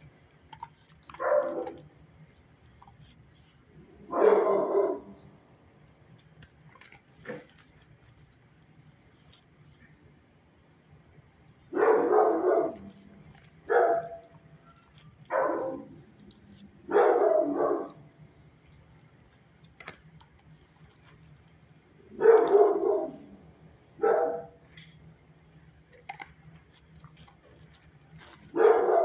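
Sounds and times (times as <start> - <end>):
dog barking: 1.1 - 1.8, 4.1 - 5.2, 11.7 - 12.9, 13.7 - 14.3, 15.3 - 15.9, 16.9 - 18.0, 22.2 - 23.3, 24.0 - 24.6, 28.5 - 29.0.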